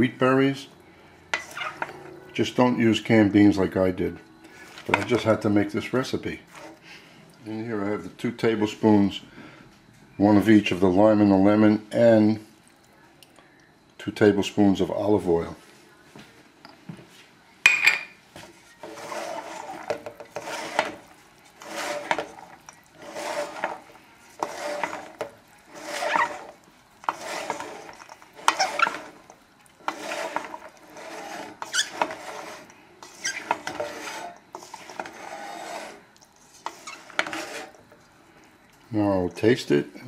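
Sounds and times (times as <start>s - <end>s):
wooden spoon scraping metal bowl: 1.3s - 7.1s, 18.4s - 39.9s.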